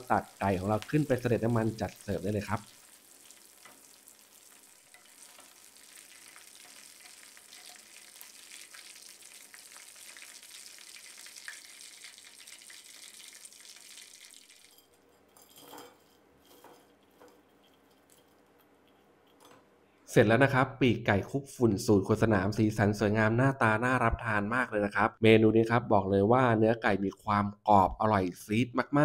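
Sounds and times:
spatula stirring in wok: 0.0 - 10.9
food deep-frying in hot oil: 0.0 - 14.9.

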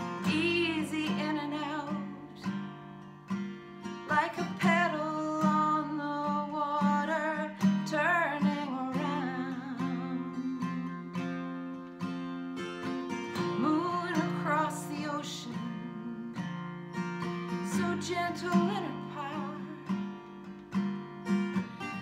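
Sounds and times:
woman singing: 0.0 - 2.9, 3.8 - 11.9, 13.3 - 16.7, 17.4 - 20.4
acoustic guitar strumming: 0.0 - 22.0.

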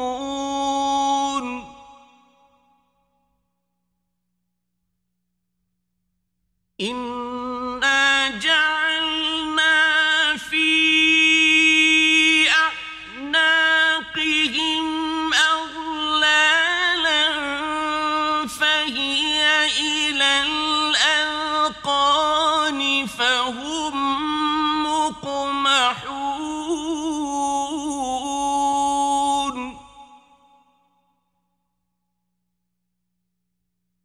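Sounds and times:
man chanting melodically: 0.0 - 2.5, 6.8 - 30.6.

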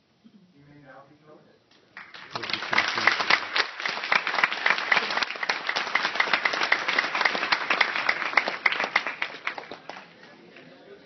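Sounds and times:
audience applauding: 2.0 - 10.7
close claps: 2.0 - 10.7.

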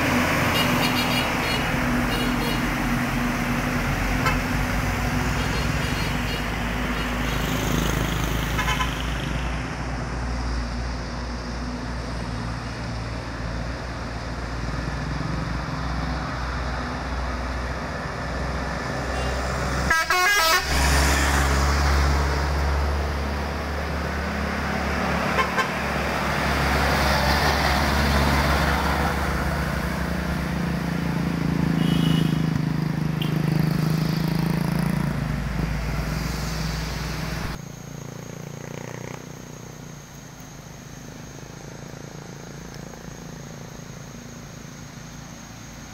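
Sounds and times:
truck engines passing: 0.0 - 45.9
truck horn toots: 19.1 - 20.9, 25.3 - 25.8, 31.8 - 32.5.

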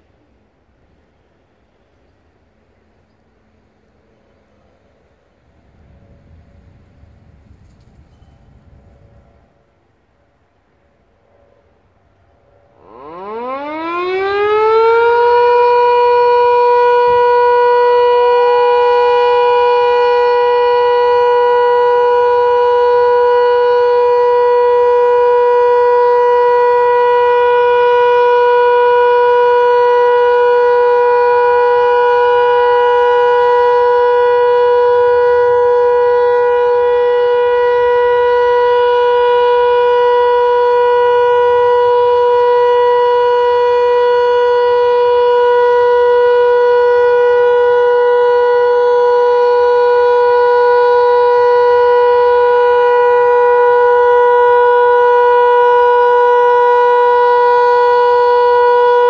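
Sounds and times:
siren steady loud tone: 0.0 - 59.0.

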